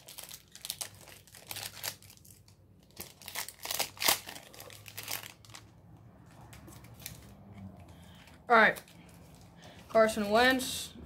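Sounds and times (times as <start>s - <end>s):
foil wrapper tearing and crinkling: 0.0s - 5.7s.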